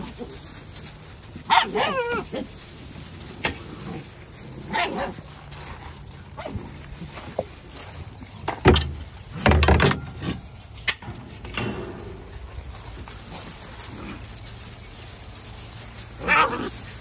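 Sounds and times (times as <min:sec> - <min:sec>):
puppies yipping and barking: 0:00.0 - 0:08.3, 0:12.2 - 0:17.0
bumps and scuffling: 0:00.0 - 0:17.0.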